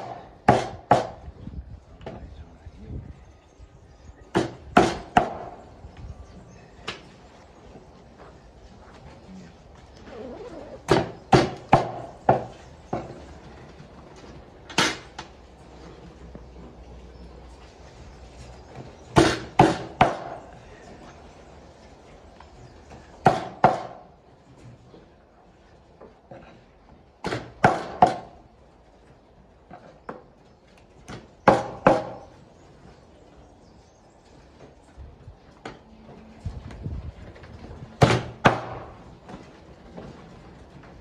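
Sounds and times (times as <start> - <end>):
cleaver chopping meat on wood: 0.0 - 1.2, 10.9 - 13.1, 19.2 - 20.4, 23.2 - 24.0, 27.2 - 28.3, 31.5 - 32.2.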